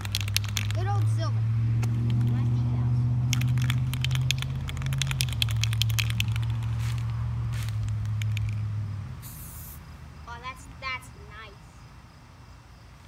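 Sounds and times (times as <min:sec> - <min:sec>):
spray can mixing ball rattling: 0:00.0 - 0:01.1, 0:03.3 - 0:08.6
spray hiss: 0:09.2 - 0:09.8.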